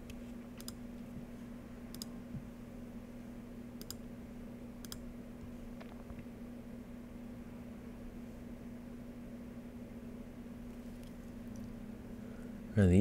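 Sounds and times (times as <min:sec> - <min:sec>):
computer mouse clicks: 0:00.0 - 0:00.8, 0:01.9 - 0:02.1, 0:03.8 - 0:04.0, 0:04.8 - 0:05.0
faint steady hum: 0:00.0 - 0:13.0.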